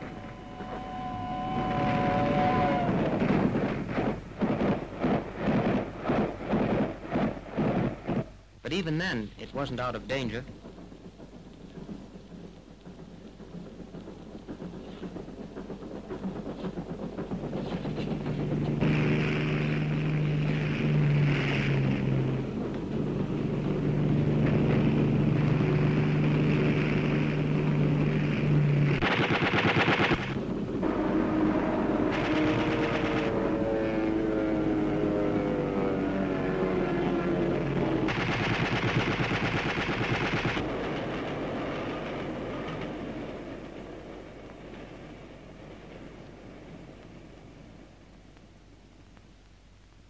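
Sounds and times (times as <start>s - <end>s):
falling whine: 0.0s - 4.2s, 16.2s - 42.8s
aircraft drone: 0.0s - 4.3s, 16.2s - 44.3s
loud rushing burst: 17.3s - 41.7s
machine-gun fire: 27.9s - 30.7s, 32.1s - 33.4s, 38.0s - 40.9s.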